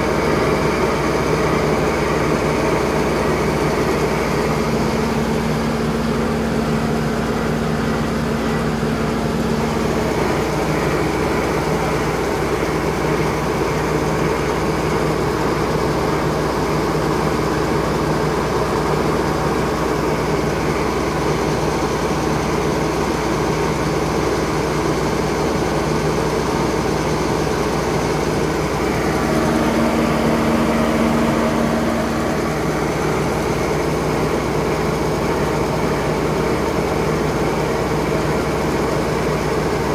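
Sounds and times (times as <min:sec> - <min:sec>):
grain auger drone: 0:00.0 - 0:39.9
mechanical hum: 0:00.0 - 0:39.9.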